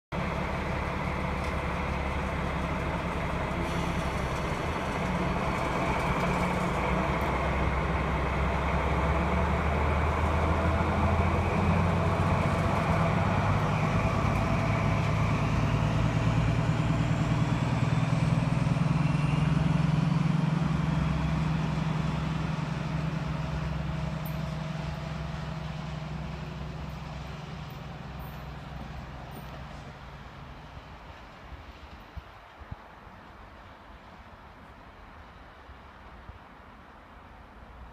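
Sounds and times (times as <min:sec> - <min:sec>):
diesel locomotive engine: 0:00.0 - 0:37.9.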